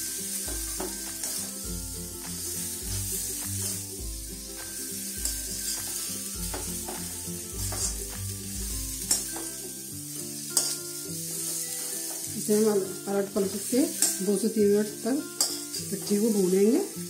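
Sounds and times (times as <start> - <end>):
background music with bass line: 0.0 - 10.2
filling sizzling in a pan: 0.0 - 17.0
spoon clinking on a pan: 4.6 - 8.0, 9.0 - 9.8, 10.4 - 12.7, 13.8 - 14.4, 15.4 - 16.5.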